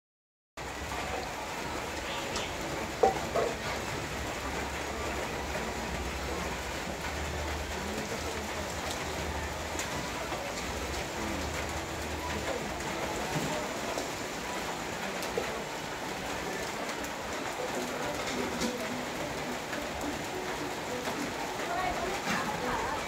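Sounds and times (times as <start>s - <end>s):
fish sizzling on charcoal grill: 1.0s - 15.8s.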